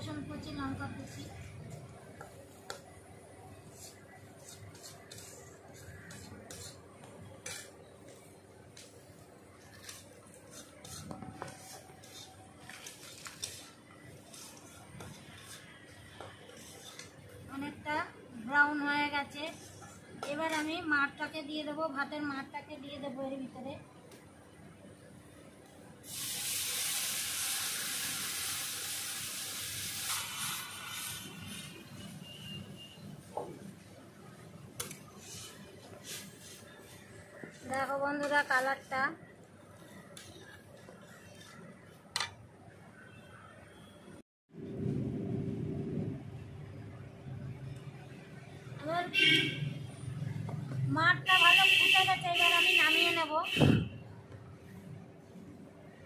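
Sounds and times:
metal spatula scraping a pan: 3.7s - 6.8s, 7.4s - 8.2s, 16.5s - 17.2s, 34.8s - 37.1s
onions frying in oil: 26.0s - 32.5s.

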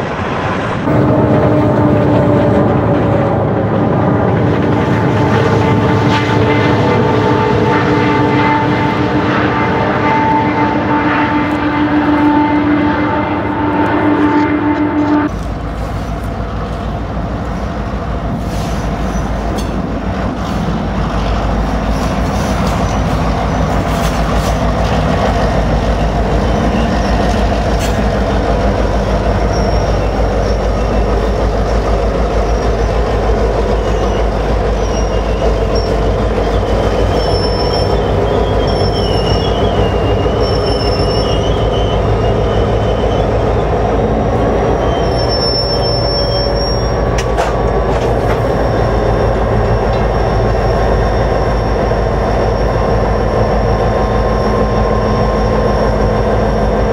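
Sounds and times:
freight train rumbling on rails: 0.0s - 56.9s
high wheel squeal: 18.5s - 19.7s, 20.4s - 56.9s.

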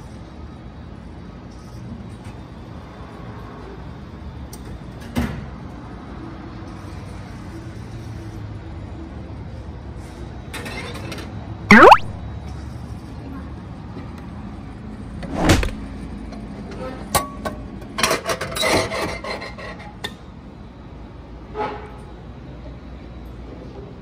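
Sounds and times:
machine clunk with swish: 15.2s - 15.8s.

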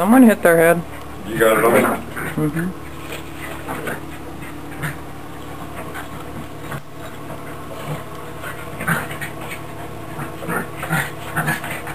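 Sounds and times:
dogs play-wrestling noises: 1.8s - 11.9s.

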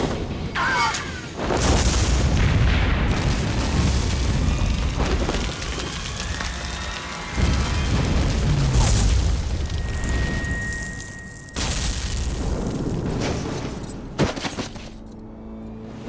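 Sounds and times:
grenade explosions: 0.0s - 14.9s
background music: 5.9s - 10.4s, 13.6s - 16.0s.

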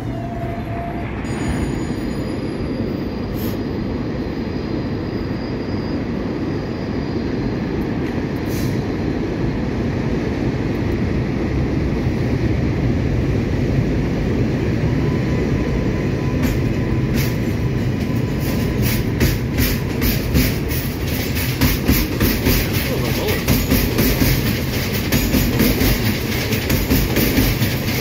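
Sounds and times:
train wheels and motors rumbling: 0.0s - 28.0s
rail-joint clicks: 16.4s - 28.0s.

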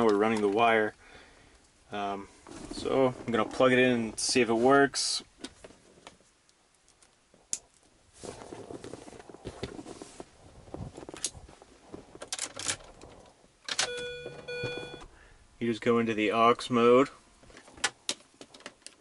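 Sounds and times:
bag rustling: 8.1s - 12.2s
short electronic beeps: 13.9s - 15.1s.

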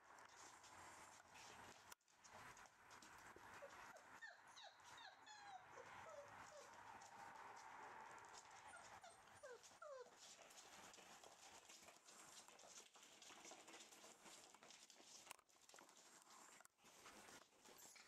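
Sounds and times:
puppy whimpers: 3.5s - 6.8s, 8.4s - 10.2s.

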